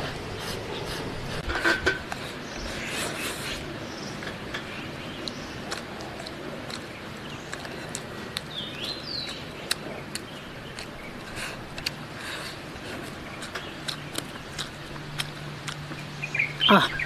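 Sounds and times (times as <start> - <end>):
bird chirping: 2.4 - 17.0
chewing: 5.2 - 17.0.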